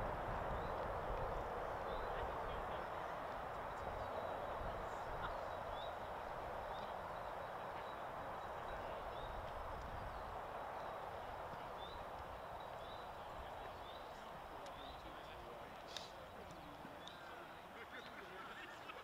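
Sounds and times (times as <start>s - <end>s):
outdoor ambient hiss: 0.0s - 19.0s
small birds chirping: 0.4s - 19.0s.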